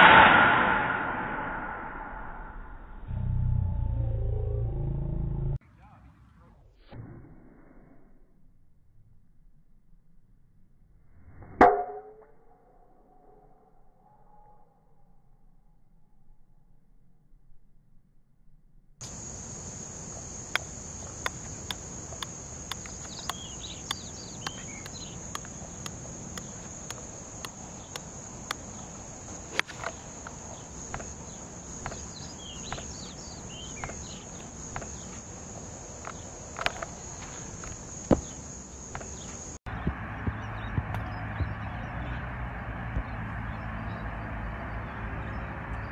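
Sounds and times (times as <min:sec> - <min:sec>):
insects droning: 0:19.0 - 0:39.6
falling bird chirps: 0:19.0 - 0:42.2
sharp cracks: 0:20.1 - 0:35.2
sharp clicks: 0:20.5 - 0:28.6.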